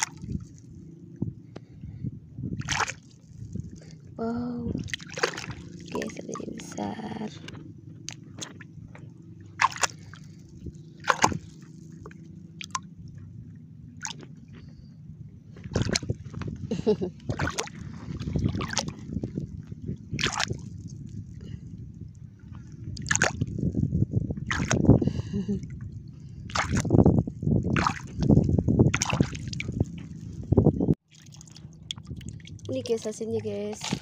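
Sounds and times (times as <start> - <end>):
hand splashing in shallow water: 2.6 - 3.0, 4.9 - 6.7, 9.6 - 10.2, 11.0 - 11.6, 24.4 - 24.8, 26.5 - 27.0, 27.7 - 28.2, 28.9 - 29.8.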